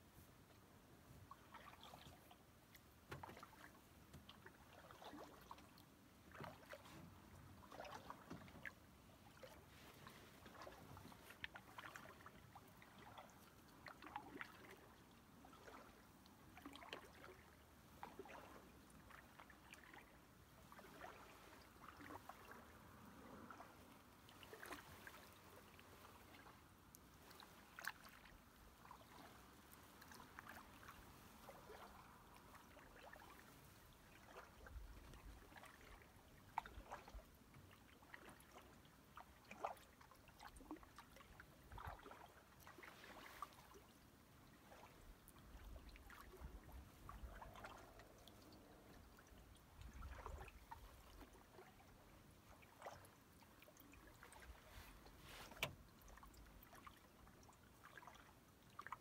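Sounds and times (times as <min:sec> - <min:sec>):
paddle dipping in water: 0:00.3 - 0:59.0
water dripping off paddle: 0:24.4 - 0:33.5, 0:53.8 - 0:57.0.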